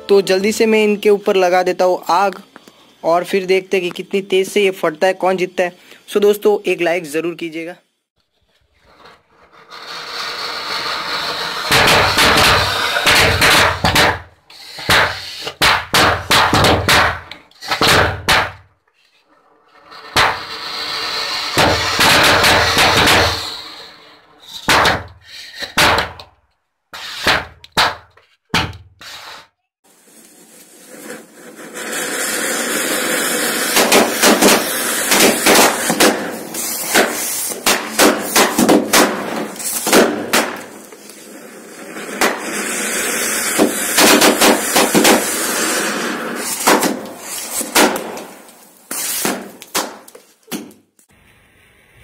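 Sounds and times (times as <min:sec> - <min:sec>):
fountain fireworks hissing: 0:09.5 - 0:16.4, 0:19.9 - 0:24.5, 0:29.1 - 0:49.6
firecrackers banging: 0:09.7 - 0:18.7, 0:19.9 - 0:23.9, 0:29.9 - 0:50.4.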